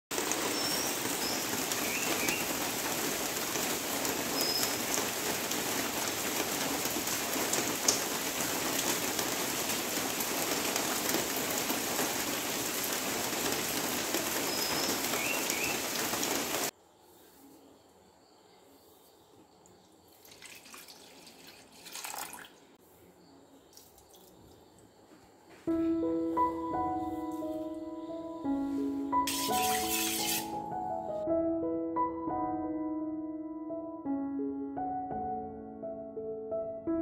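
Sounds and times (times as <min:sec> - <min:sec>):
rain on foliage: 0:00.1 - 0:16.7, 0:20.2 - 0:22.3
bird chirps: 0:00.5 - 0:02.5, 0:04.4 - 0:04.8, 0:14.4 - 0:16.0.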